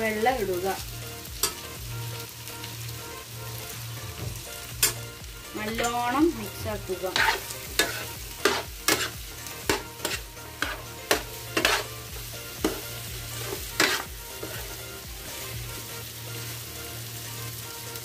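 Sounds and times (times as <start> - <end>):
chicken sizzling in frying pan: 0.0 - 18.0
spoon scraping against pan: 5.7 - 6.2, 7.1 - 14.8.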